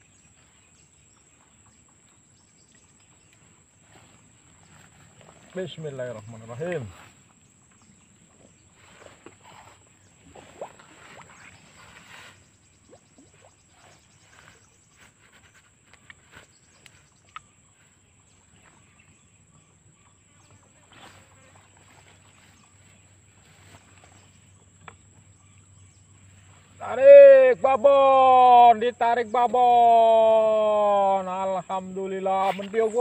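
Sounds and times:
soft rustles and ticks: 13.9s - 18.8s.

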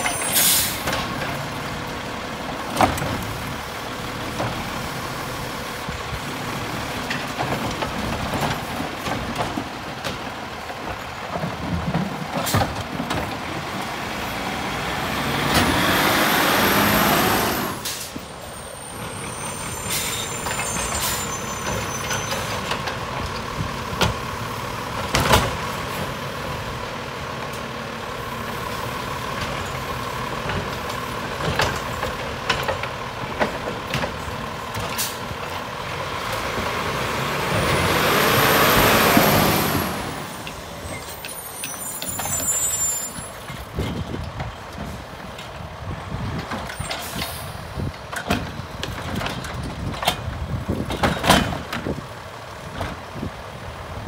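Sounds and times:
sharp knocks of carts: 0.0s - 3.5s, 6.2s - 14.3s, 20.3s - 26.4s, 29.2s - 53.4s
air brake hiss: 0.2s - 0.9s, 19.7s - 20.4s.

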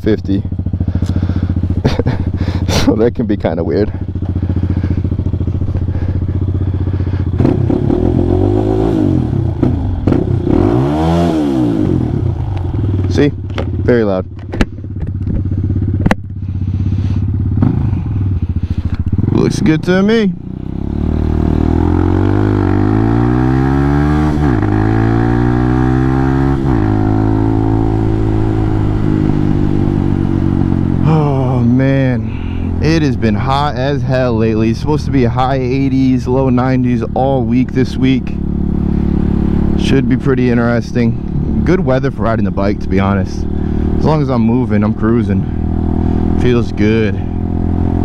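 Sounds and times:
motorcycle engine idling and revving: 0.0s - 48.0s.

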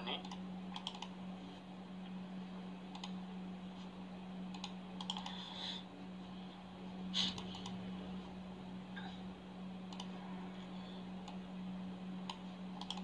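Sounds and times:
steady low hum: 0.0s - 13.0s
mouse and keyboard clicks: 4.6s - 5.3s, 12.2s - 13.0s.

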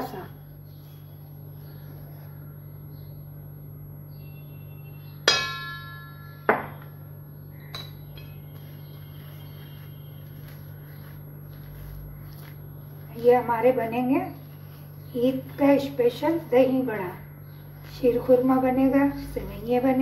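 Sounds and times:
steady low hum: 0.0s - 20.0s
metal spoon striking ringing bowl: 5.2s - 6.8s.

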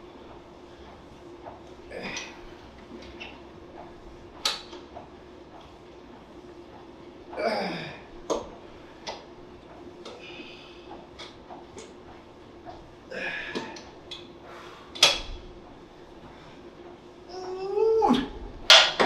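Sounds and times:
steady low hum: 0.0s - 19.0s
gym equipment metal knocks: 18.6s - 19.0s.

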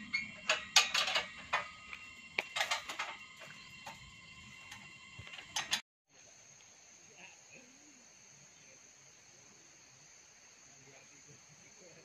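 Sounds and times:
metal pipes clinking: 0.0s - 5.8s.

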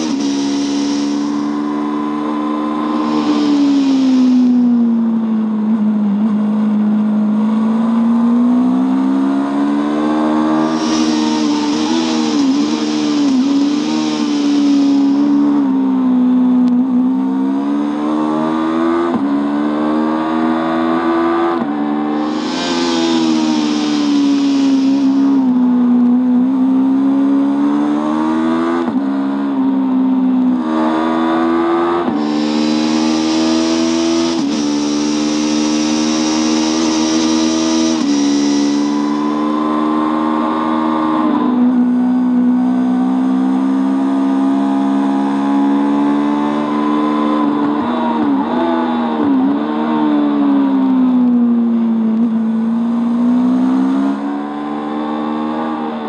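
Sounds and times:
rush of wind: 0.0s - 5.6s, 10.4s - 16.0s, 21.1s - 25.9s, 30.7s - 41.6s
motorcycle engine at high revs: 0.0s - 56.0s.

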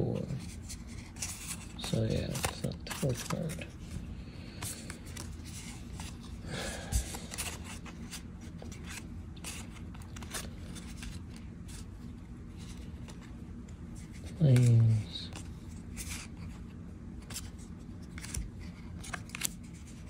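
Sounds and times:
cards sliding and rustling: 0.0s - 20.0s.

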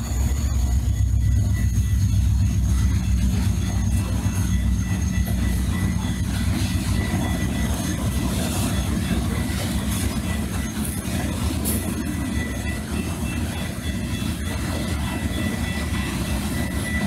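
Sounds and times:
faint high wheel squeal: 0.0s - 17.0s
train wheels rumbling on rail: 0.0s - 17.0s.

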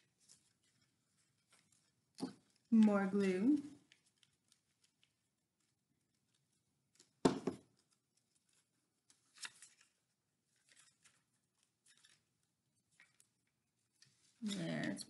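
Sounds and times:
paper rustling and crinkling: 0.0s - 15.0s
glue stick knocking on table: 7.2s - 7.6s.

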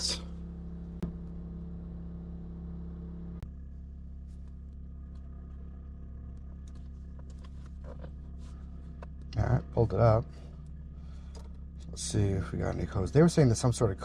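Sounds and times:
low machine hum: 0.0s - 14.0s.

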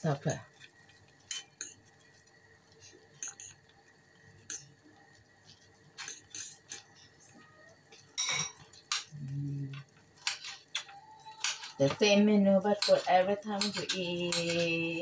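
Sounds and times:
metal fork clinking in saucepan: 1.3s - 1.8s, 8.2s - 9.1s, 12.8s - 14.9s.

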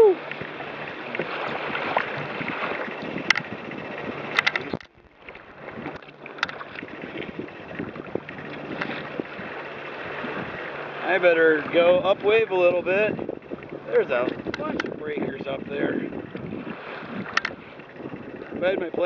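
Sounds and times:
sharp water splashes: 0.0s - 15.0s
water slapping a wooden hull: 0.0s - 19.0s
wind buffeting microphone: 0.0s - 19.0s.

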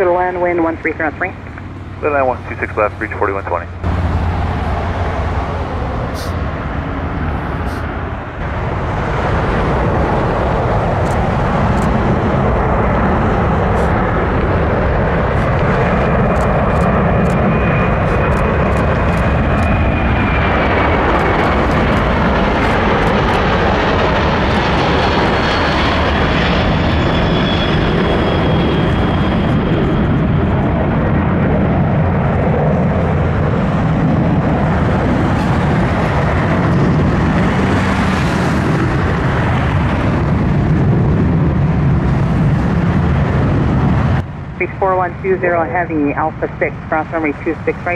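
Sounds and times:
high engine whine: 0.0s - 47.9s
jet engine roar: 0.0s - 47.9s.

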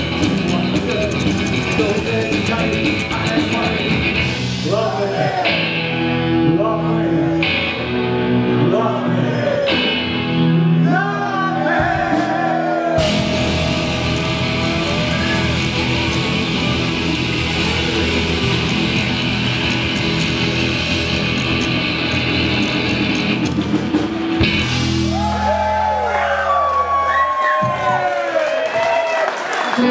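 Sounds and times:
man singing: 0.0s - 5.7s, 6.3s - 7.8s, 8.5s - 10.0s
rockabilly band playing: 0.0s - 8.9s, 11.6s - 28.0s.

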